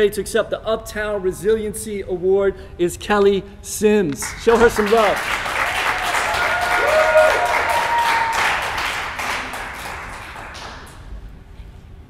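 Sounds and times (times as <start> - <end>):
small group applauding: 4.2 - 11.2
whoops of cheering: 5.6 - 8.8.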